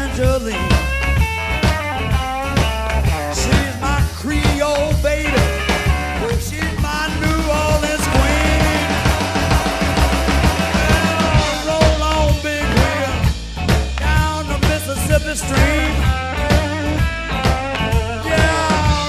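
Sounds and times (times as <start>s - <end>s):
bass line: 0.0s - 19.0s
drum kit beat: 0.0s - 19.0s
harmonica bending notes: 7.6s - 13.5s, 15.7s - 19.0s.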